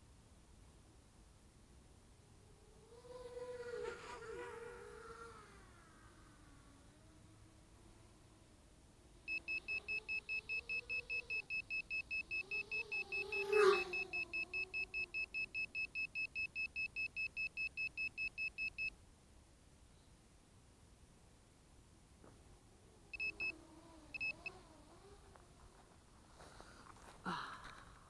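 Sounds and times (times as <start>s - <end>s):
electronic buzzer beeping rapidly: 9.3s - 18.9s.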